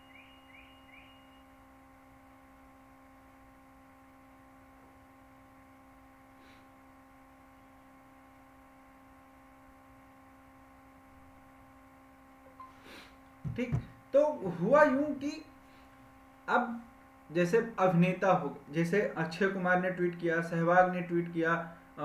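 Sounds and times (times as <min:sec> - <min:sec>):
faint electrical hum: 0:00.0 - 0:22.0.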